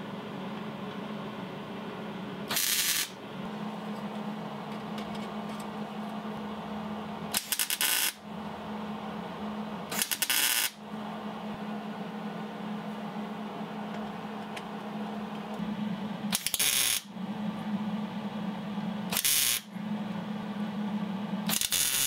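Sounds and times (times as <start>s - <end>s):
steady hum: 0.0s - 22.0s
welder crackling sizzle: 2.5s - 3.2s, 7.3s - 8.2s, 9.9s - 10.8s, 16.3s - 17.0s, 19.1s - 19.7s, 21.5s - 22.0s.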